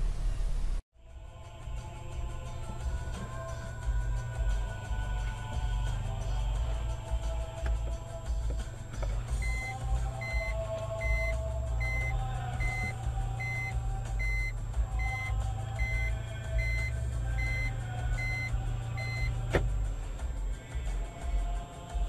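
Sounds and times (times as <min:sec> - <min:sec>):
car engine idling: 0:00.0 - 0:22.0
electronic reversing beeps: 0:09.4 - 0:19.4.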